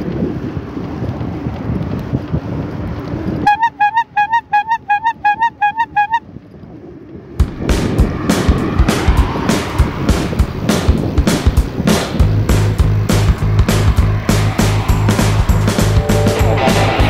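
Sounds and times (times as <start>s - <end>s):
wind buffeting microphone: 0.0s - 17.0s
short high pips: 3.5s - 6.2s.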